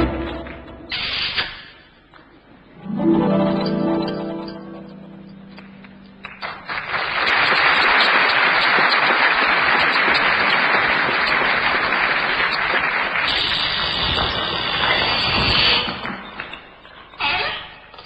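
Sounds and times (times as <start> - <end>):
audience applauding: 5.6 - 15.4.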